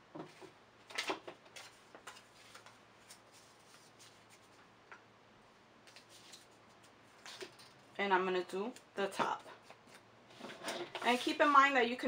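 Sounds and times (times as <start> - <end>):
light rustling of paint supplies: 9.0 - 11.8.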